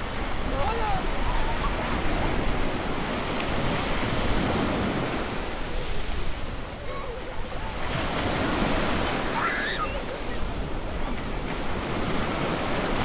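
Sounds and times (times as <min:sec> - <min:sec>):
ocean surf breaking on beach: 0:00.0 - 0:13.0
distant children's voices: 0:06.6 - 0:08.2, 0:09.1 - 0:11.5.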